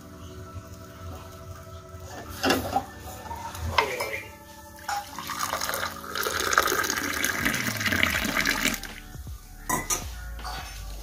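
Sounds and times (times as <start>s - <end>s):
tea pouring into a glass: 5.0s - 9.0s.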